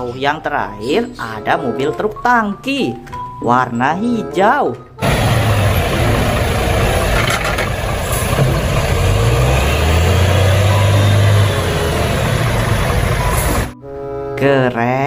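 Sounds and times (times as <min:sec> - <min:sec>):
truck diesel engine passing: 0:05.0 - 0:13.8.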